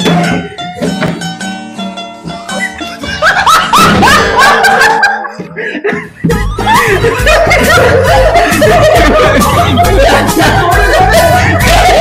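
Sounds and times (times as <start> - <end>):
person chuckling: 2.5 - 12.0
music with bass beat: 6.3 - 12.0.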